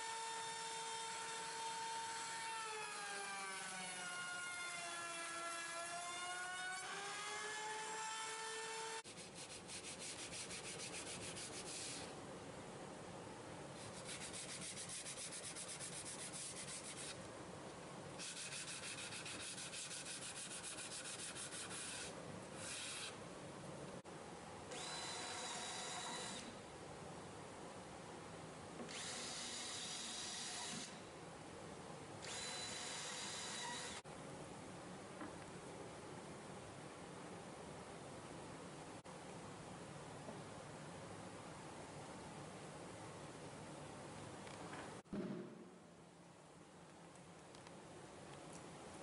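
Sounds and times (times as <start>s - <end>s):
sanding block rubbing wood: 9.1s - 12.1s, 13.9s - 17.2s, 18.2s - 22.1s
cordless drill whine: 24.7s - 26.5s, 28.9s - 31.0s, 32.2s - 34.0s.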